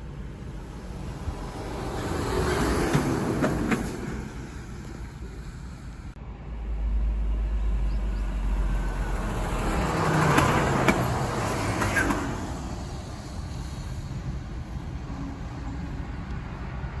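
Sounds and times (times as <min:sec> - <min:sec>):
vehicle engine rumble: 0:00.0 - 0:17.0
tyre noise on asphalt: 0:08.7 - 0:17.0.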